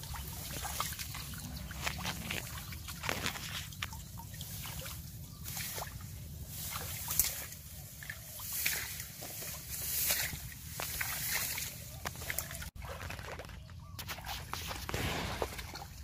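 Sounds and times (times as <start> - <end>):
wading through muddy water: 0.0 - 16.0.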